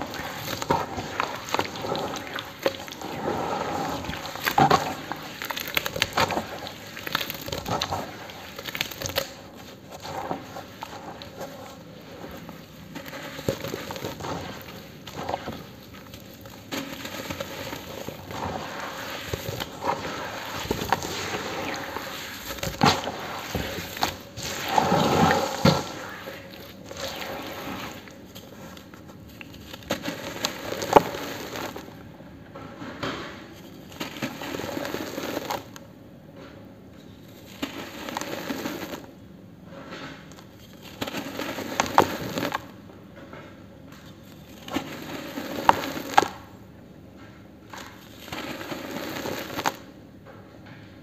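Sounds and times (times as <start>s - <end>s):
grit trickling into basin: 0.0s - 28.7s
damp cement crunching by hand: 0.0s - 32.0s, 33.6s - 35.8s, 37.4s - 39.2s, 40.4s - 42.8s, 44.0s - 46.6s, 47.6s - 50.0s.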